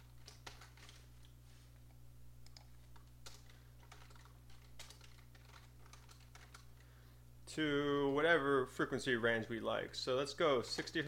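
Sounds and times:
typing on a computer keyboard: 0:00.0 - 0:01.0, 0:02.4 - 0:06.8
low steady hum: 0:00.0 - 0:11.0.

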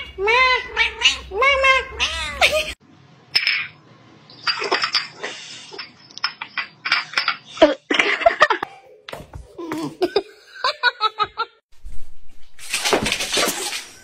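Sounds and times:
person laughing: 0:09.6 - 0:11.6.

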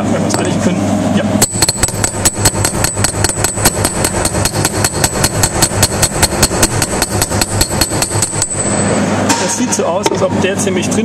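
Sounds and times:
rapid hammer blows on steel: 0:01.4 - 0:09.0.

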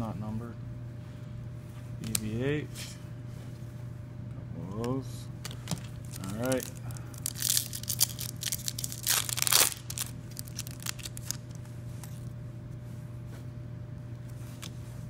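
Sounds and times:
steady low hum: 0:00.0 - 0:15.0
cards clicking and rustling: 0:05.4 - 0:12.2
foil wrapper tearing: 0:05.5 - 0:12.3.

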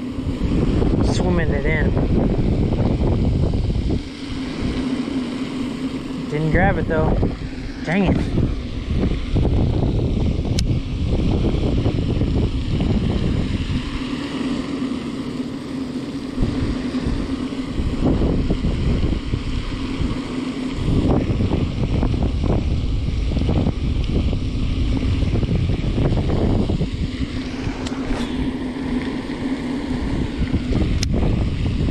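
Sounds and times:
wind buffeting microphone: 0:00.0 - 0:31.9
sharp click: 0:10.5 - 0:10.7.

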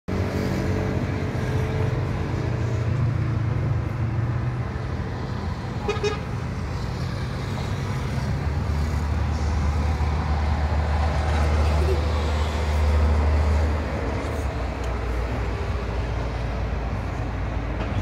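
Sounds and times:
road traffic hum: 0:00.1 - 0:18.0
car horn tooting: 0:05.8 - 0:06.3.

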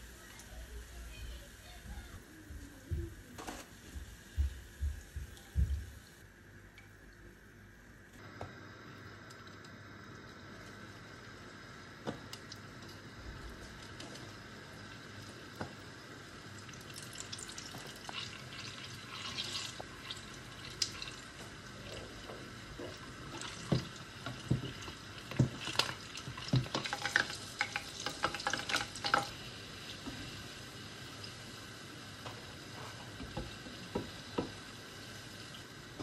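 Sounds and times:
dough sizzling in hot oil: 0:08.6 - 0:36.0.

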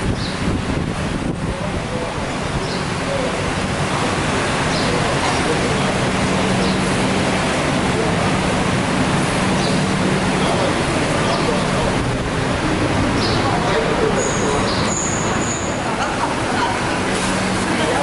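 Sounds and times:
rushing background noise: 0:00.0 - 0:18.0.

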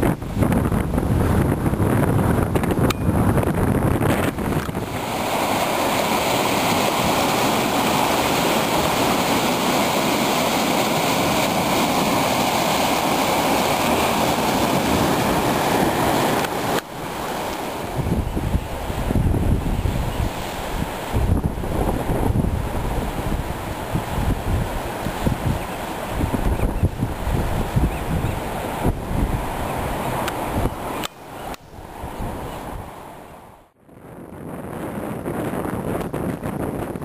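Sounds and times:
surf breaking on rocks: 0:00.0 - 0:33.1
wind buffeting microphone: 0:00.0 - 0:37.0
small waves on sand: 0:04.3 - 0:33.6.

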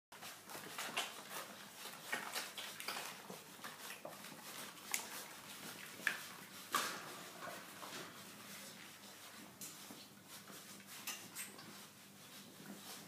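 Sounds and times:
puppies feeding clicks and knocks: 0:00.2 - 0:08.2, 0:10.8 - 0:11.8.

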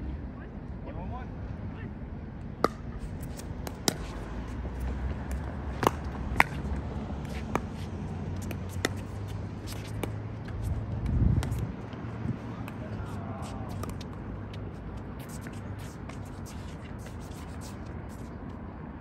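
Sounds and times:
paddles hitting plastic ball: 0:02.6 - 0:04.2, 0:04.8 - 0:06.8.

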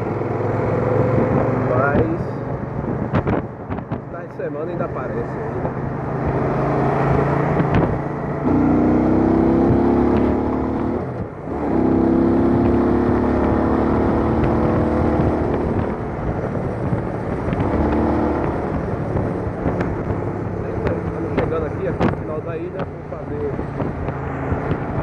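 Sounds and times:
motorcycle engine at road speed: 0:00.0 - 0:25.0.

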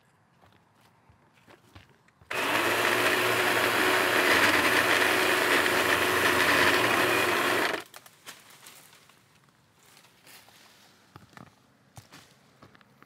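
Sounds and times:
battery pole saw cutting: 0:02.3 - 0:07.9.

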